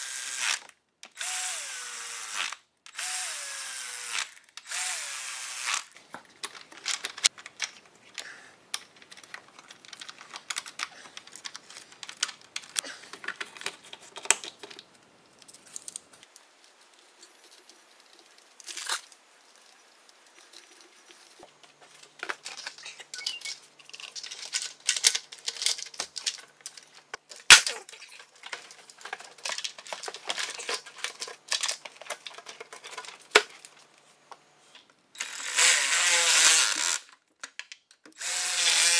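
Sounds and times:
hands handling engine parts: 0:06.0 - 0:18.5, 0:20.1 - 0:35.0.

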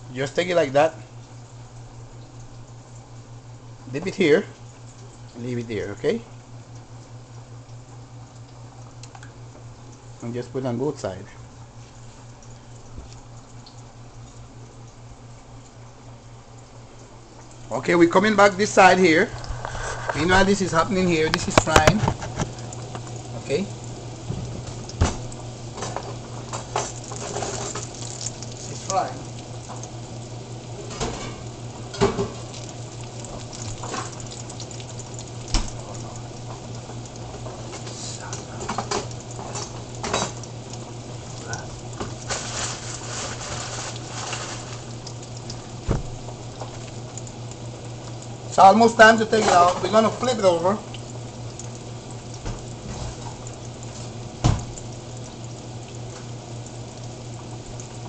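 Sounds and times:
constant low hum: 0:00.0 - 0:58.0
fish sizzling in hot fat: 0:18.1 - 0:58.0.

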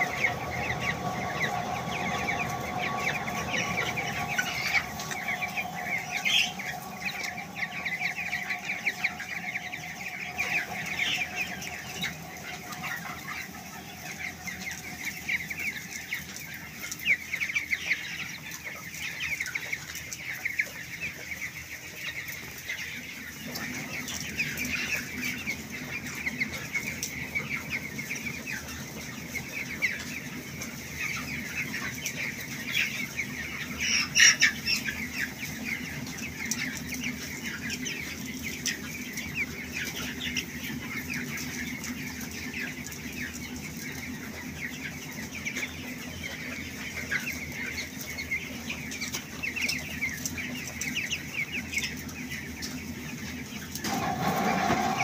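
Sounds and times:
chicken squawk: 0:00.0 - 0:18.4, 0:52.9 - 0:55.0
chicks cheeping: 0:00.0 - 0:55.0
low steady hum: 0:00.0 - 0:55.0.

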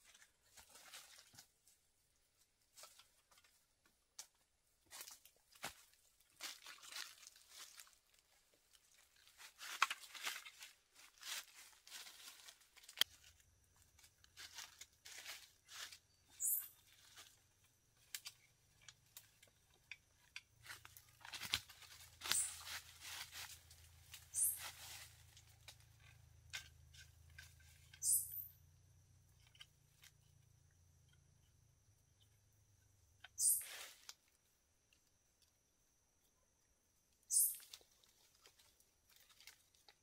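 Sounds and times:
leaves and branches rustling: 0:00.0 - 0:03.6, 0:04.2 - 0:28.2, 0:33.4 - 0:34.4, 0:37.5 - 0:40.0
high chirps: 0:16.2 - 0:16.8, 0:24.3 - 0:24.7, 0:28.0 - 0:28.6, 0:33.4 - 0:33.7, 0:37.3 - 0:37.7.

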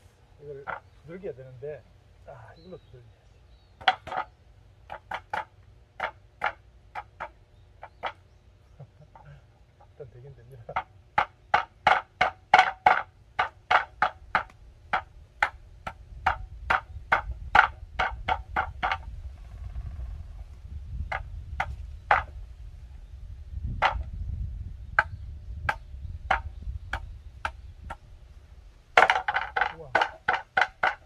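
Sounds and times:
roots pounded on wooden board: 0:00.6 - 0:01.0, 0:03.8 - 0:08.2, 0:10.7 - 0:19.1, 0:21.0 - 0:22.4, 0:23.7 - 0:24.2, 0:25.0 - 0:28.0, 0:28.9 - 0:31.0.

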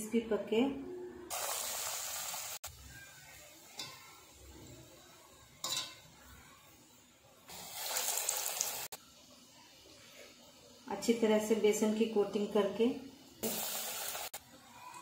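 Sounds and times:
oil sizzling: 0:01.3 - 0:14.6.

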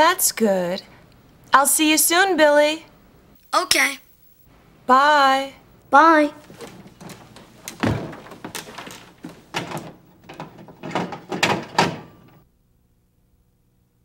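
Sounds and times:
objects knocking on kitchen counter: 0:06.7 - 0:12.4.

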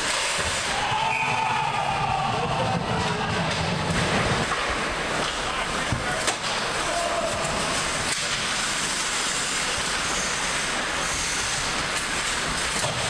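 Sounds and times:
skates hissing on ice: 0:00.0 - 0:01.1, 0:04.1 - 0:13.0.

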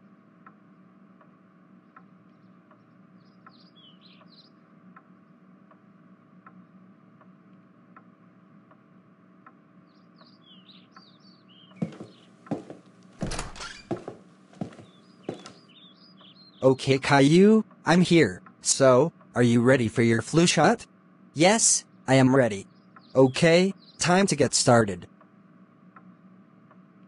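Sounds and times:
soft clock ticking: 0:00.4 - 0:11.1
bird chirping: 0:02.3 - 0:04.6, 0:09.8 - 0:19.0, 0:21.6 - 0:24.5.

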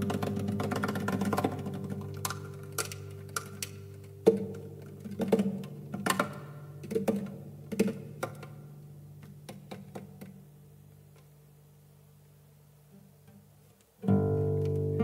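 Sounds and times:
percussive taps on guitar: 0:00.0 - 0:08.6
guitar chord ringing: 0:14.1 - 0:15.0.

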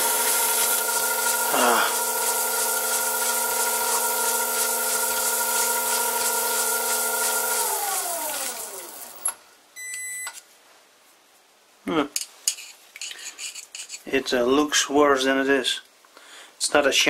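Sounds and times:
cutting tool hiss: 0:00.0 - 0:09.3
lathe spindle spinning down: 0:00.0 - 0:09.3
metal lathe motor whine: 0:00.0 - 0:09.3.

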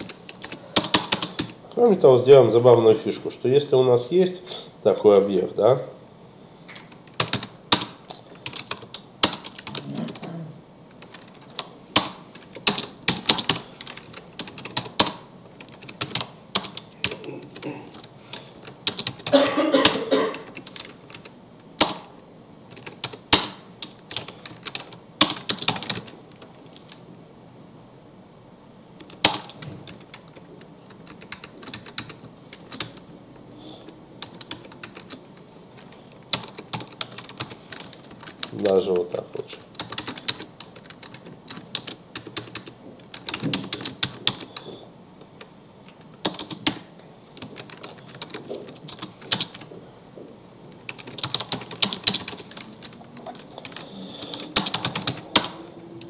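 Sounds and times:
keyboard typing clicks: 0:50.9 - 0:55.6.

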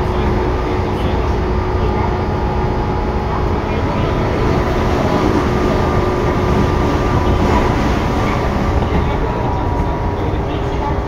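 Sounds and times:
train wheels rumbling: 0:00.0 - 0:11.0.

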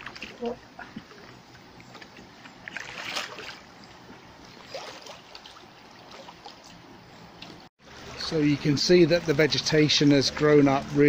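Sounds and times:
splashing from wading: 0:00.0 - 0:06.8.

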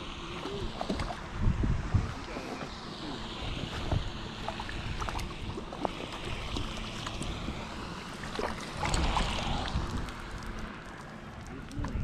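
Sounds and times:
wind buffeting microphone: 0:00.0 - 0:12.0
fish thrashing in water: 0:04.3 - 0:11.2.

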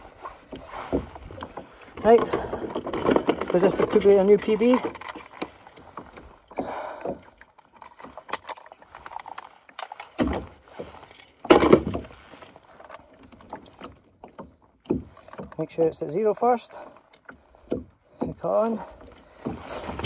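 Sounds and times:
metal clinks and rattles: 0:02.2 - 0:05.7, 0:07.4 - 0:13.8.

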